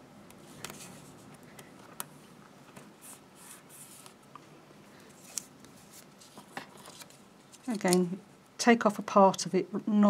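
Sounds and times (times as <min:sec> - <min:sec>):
tape rubbing and rustling: 0:00.4 - 0:04.2, 0:05.1 - 0:08.1.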